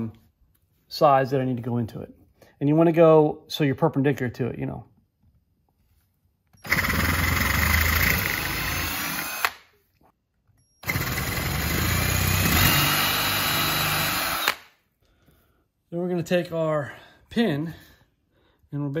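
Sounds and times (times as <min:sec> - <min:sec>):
cordless drill boring through wood: 0:06.6 - 0:09.6, 0:10.8 - 0:14.7.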